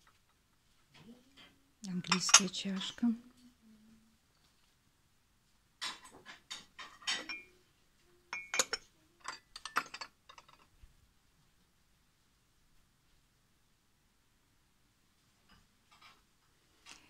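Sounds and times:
porcelain cups clinking: 2.0s - 2.9s, 5.8s - 7.6s, 8.3s - 10.7s.

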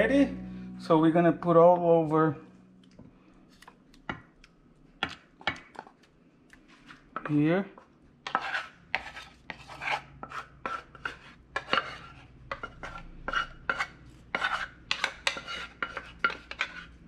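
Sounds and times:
wooden spoon scraping saucepan: 6.6s - 17.0s.

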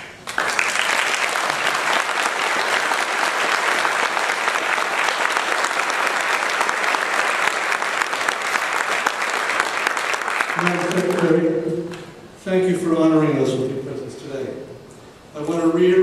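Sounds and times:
audience applauding: 0.1s - 12.0s.

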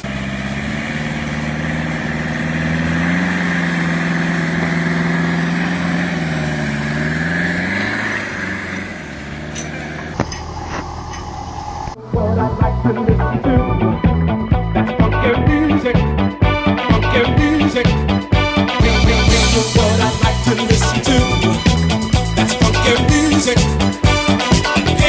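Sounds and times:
diesel truck engine under load: 0.0s - 12.0s.

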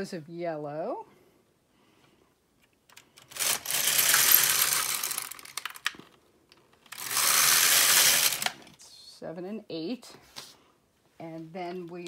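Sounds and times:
knitting machine carriage rattling: 2.9s - 6.1s, 6.9s - 8.6s.

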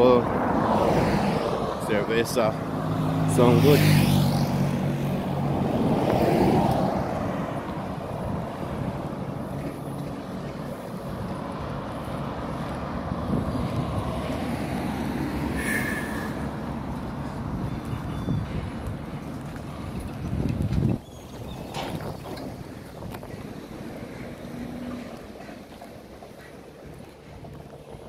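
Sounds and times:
distant traffic hum: 0.0s - 28.0s
wind: 0.0s - 28.0s
motorcycle passing close by: 2.7s - 7.2s.

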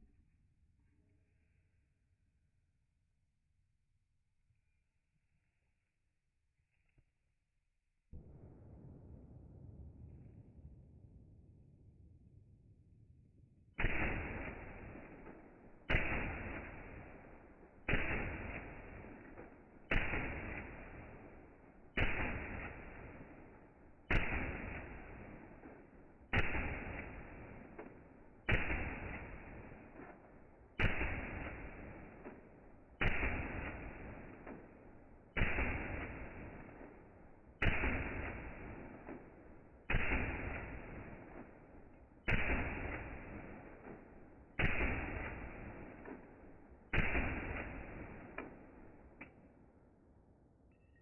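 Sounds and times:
slowed rifle shots: 13.8s - 49.9s.

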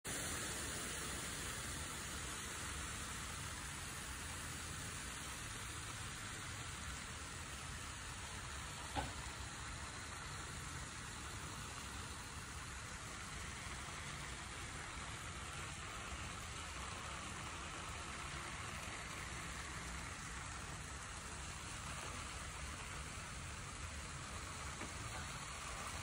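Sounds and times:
rain falling: 0.1s - 26.0s.

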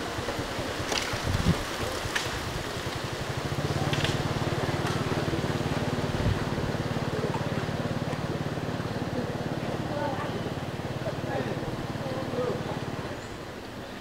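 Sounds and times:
low pulsing mechanical hum: 0.0s - 14.0s
faint clicks: 2.0s - 3.0s, 3.9s - 4.2s.

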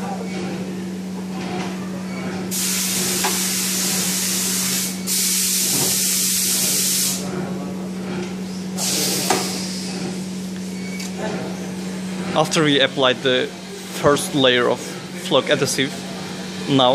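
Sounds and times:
low machine hum: 0.0s - 16.9s
pressurised spray hissing: 2.5s - 7.2s.

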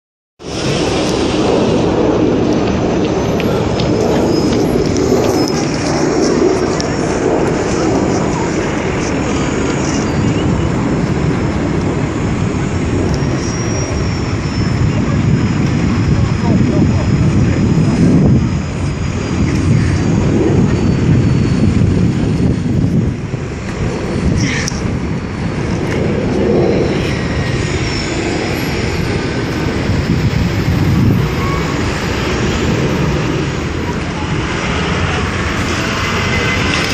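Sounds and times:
city street noise: 0.4s - 36.9s
jet engines climbing out: 0.4s - 36.9s
faint high whine: 12.1s - 36.9s.

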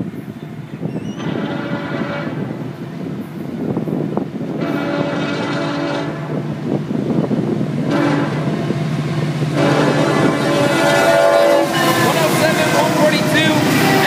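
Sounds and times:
diesel locomotive rumble: 0.0s - 14.0s
locomotive air horn blasts: 1.2s - 2.6s, 4.6s - 6.4s, 7.8s - 8.7s, 9.5s - 14.0s.

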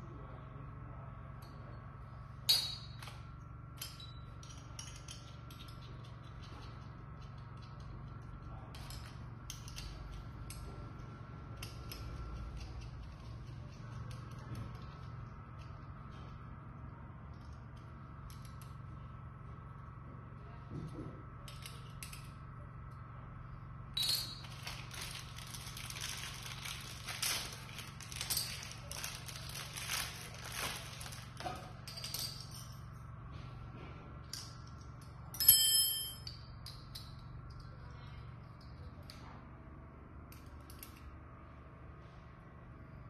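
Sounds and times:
metal parts rustling and clicking: 3.8s - 7.8s, 24.0s - 33.0s
metal piece clanging on tile: 24.0s - 24.4s.

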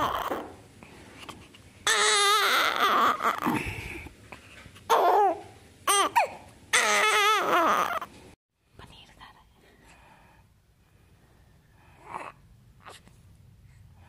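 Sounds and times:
newborn baby crying: 0.0s - 0.6s, 1.8s - 3.6s, 4.9s - 8.1s.

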